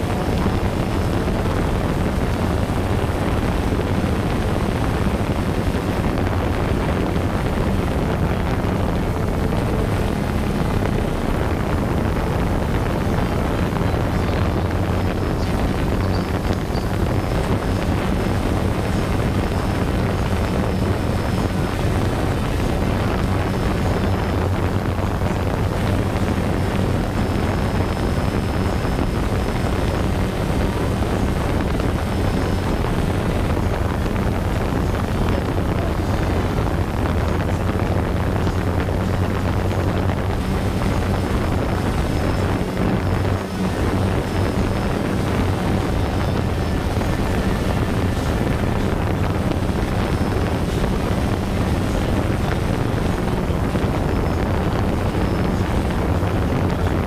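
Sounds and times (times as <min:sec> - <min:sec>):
drone propellers buzzing: 0:00.0 - 0:57.0
wind noise on microphone: 0:00.0 - 0:57.0.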